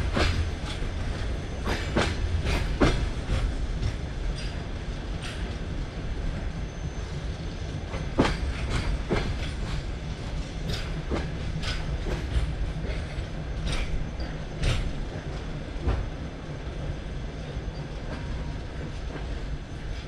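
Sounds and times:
wheels clacking over rail joints: 0.0s - 5.8s, 7.9s - 16.2s
train wheels rumbling on rail: 0.0s - 20.0s.

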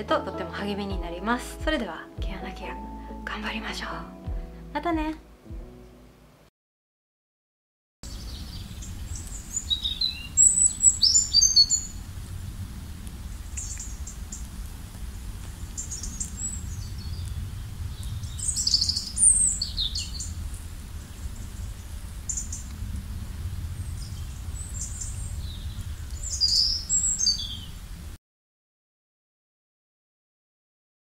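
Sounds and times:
small birds chirping: 8.0s - 12.2s, 12.9s - 22.9s, 23.7s - 27.9s
steady low rumble: 8.0s - 28.2s.

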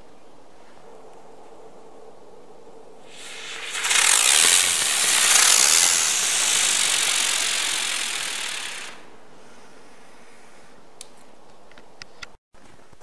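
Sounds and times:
firework hissing: 3.1s - 9.2s.

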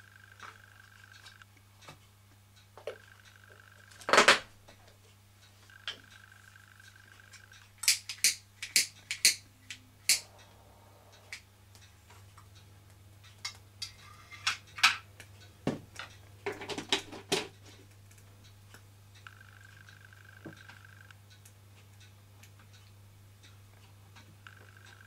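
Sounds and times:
small objects clicking and tapping: 7.2s - 10.3s.

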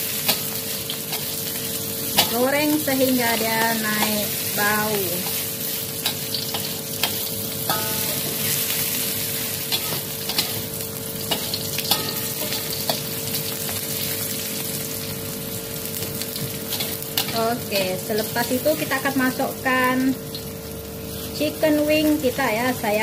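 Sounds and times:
food sizzling in oil: 0.0s - 23.0s
metal spatula scraping wok: 4.0s - 13.8s.

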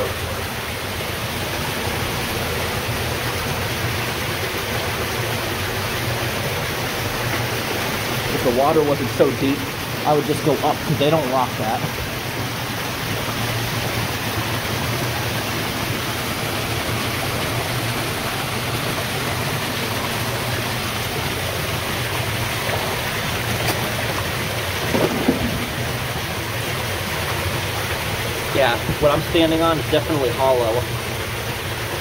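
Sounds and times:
water pouring and splashing: 0.0s - 32.0s.

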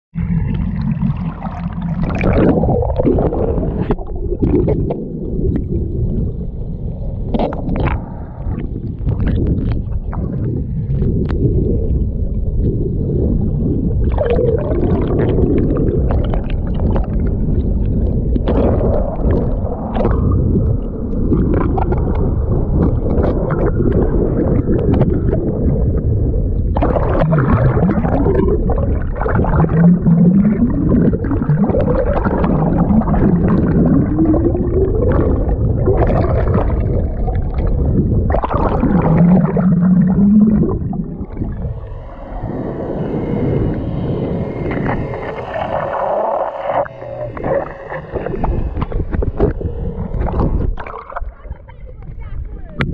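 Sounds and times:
underwater water rushing and bubbling: 0.2s - 52.9s
low humming sliding tones: 9.7s - 52.0s.

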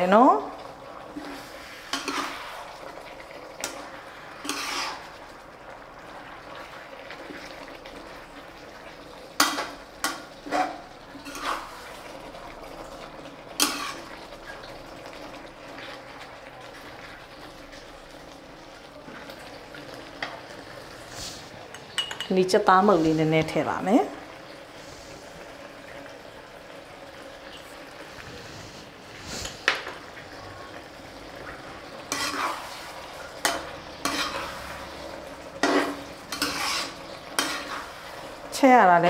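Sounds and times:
metal utensils clinking on dishes: 21.7s - 22.5s, 35.6s - 37.9s.

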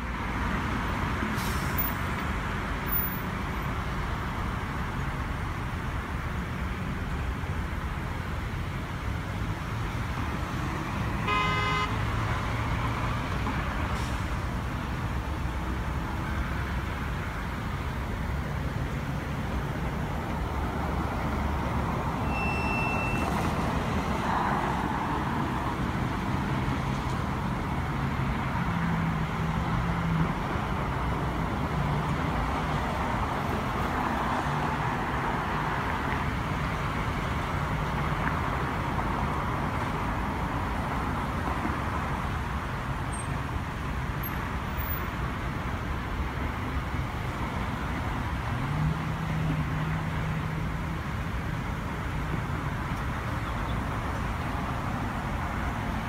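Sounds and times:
road traffic noise: 0.0s - 56.0s
car horn toot: 11.2s - 12.0s.

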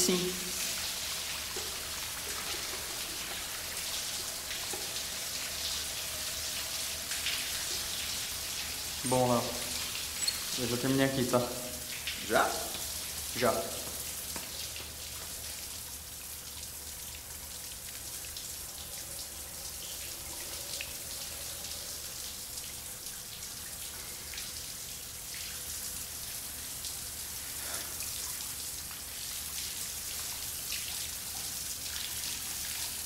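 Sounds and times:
shower water spattering on tiles: 11.7s - 15.8s.

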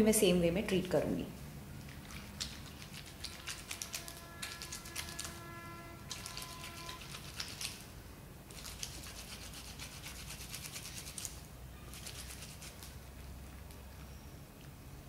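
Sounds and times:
hands scrubbing wet fabric: 1.8s - 5.5s, 6.1s - 7.9s, 8.5s - 13.1s.

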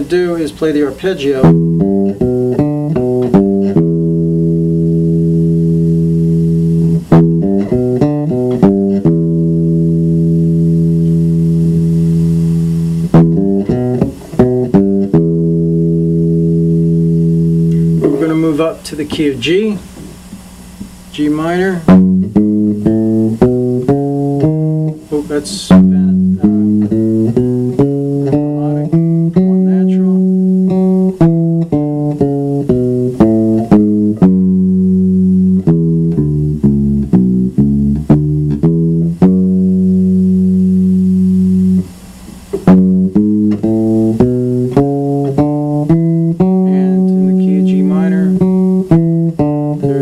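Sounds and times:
bass guitar playing single notes: 0.0s - 50.0s.

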